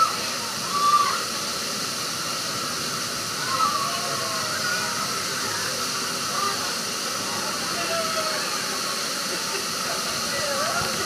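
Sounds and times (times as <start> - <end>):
water pouring and spraying: 0.0 - 11.0.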